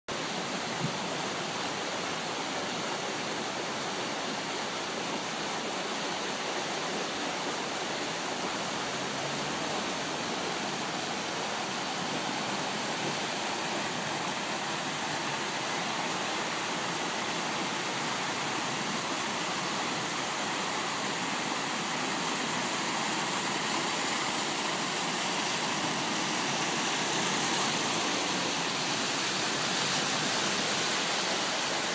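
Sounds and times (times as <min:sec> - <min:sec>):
floodwater rushing: 0:00.1 - 0:31.9.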